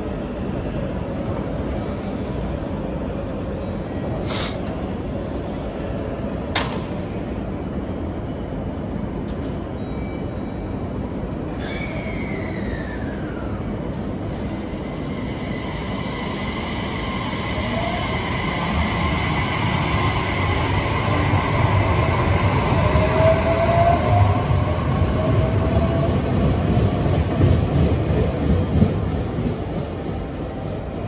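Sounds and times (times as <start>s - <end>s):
wheels rumbling on rail: 0.0s - 31.0s
short hiss: 4.2s - 4.6s.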